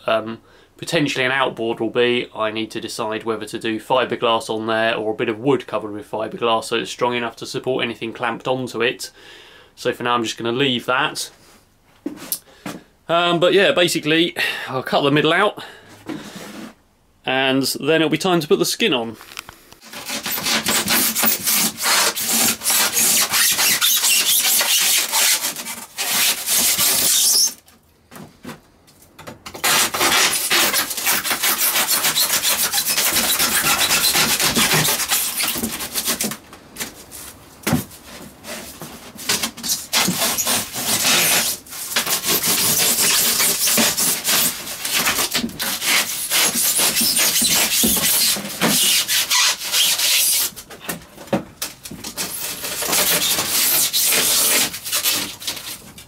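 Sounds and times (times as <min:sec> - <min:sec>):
hand saw cutting polystyrene: 0:19.8 - 0:27.6, 0:29.5 - 0:50.6, 0:52.0 - 0:55.8.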